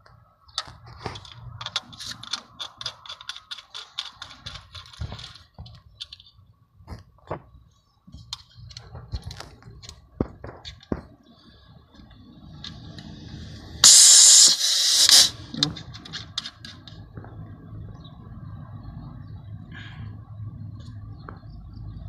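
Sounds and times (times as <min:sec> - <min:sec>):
small metallic clicks and taps: 0:00.0 - 0:07.4, 0:15.6 - 0:17.4
gas hissing from valve: 0:13.0 - 0:15.5.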